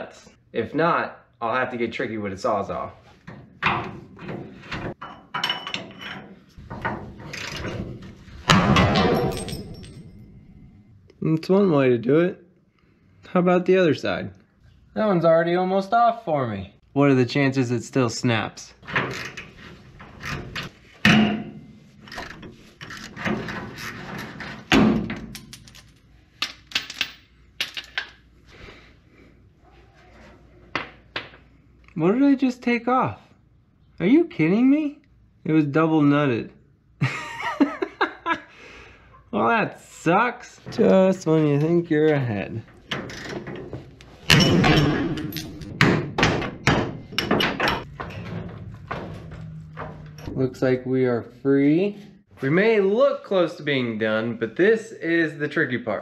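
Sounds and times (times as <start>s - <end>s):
loud metal knocks: 44.3s - 50.3s.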